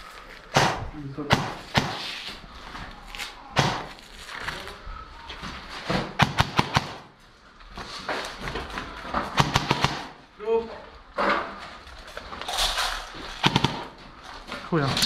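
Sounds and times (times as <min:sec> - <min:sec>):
airsoft gunfire bursts: 0:06.2 - 0:07.1, 0:09.4 - 0:10.2, 0:13.4 - 0:13.9.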